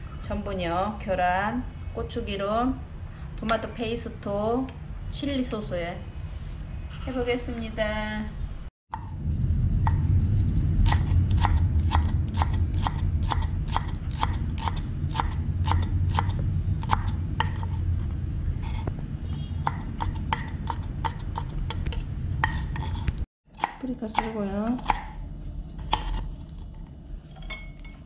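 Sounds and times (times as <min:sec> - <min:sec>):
knife chopping on wooden board: 0:10.8 - 0:17.8, 0:19.6 - 0:25.2, 0:25.8 - 0:26.4.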